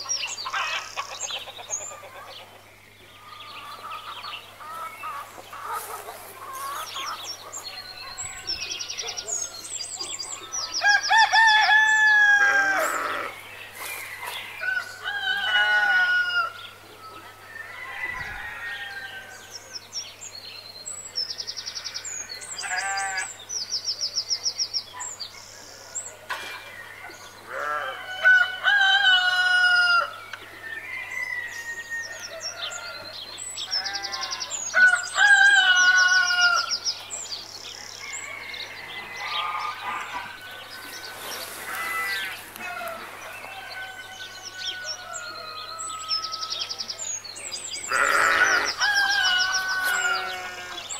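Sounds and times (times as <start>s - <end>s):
chickens clucking: 0.0s - 9.2s
roosters crowing: 10.6s - 19.5s, 27.3s - 36.8s, 37.8s - 46.9s, 47.8s - 50.9s.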